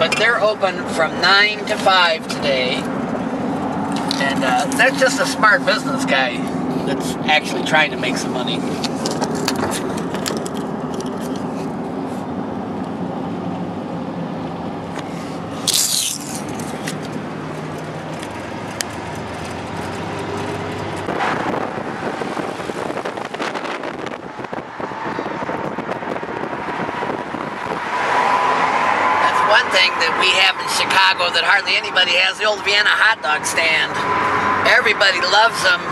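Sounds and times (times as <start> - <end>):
car engine and road noise: 0.0 - 35.9
loud rush of noise: 2.9 - 30.7.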